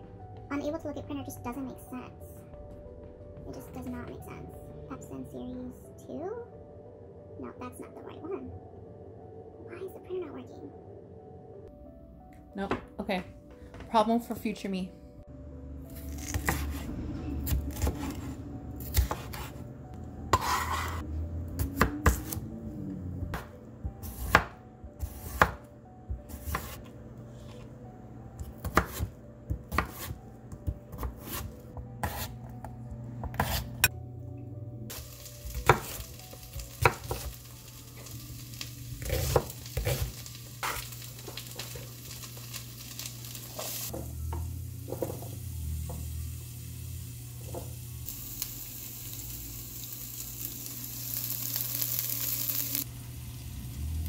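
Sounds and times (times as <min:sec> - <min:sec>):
knife chopping on wooden board: 0:16.2 - 0:16.8, 0:18.9 - 0:19.5, 0:23.4 - 0:25.6, 0:26.3 - 0:26.9, 0:28.4 - 0:32.4, 0:33.2 - 0:33.9
vegetables sizzling in a pan: 0:34.9 - 0:54.0.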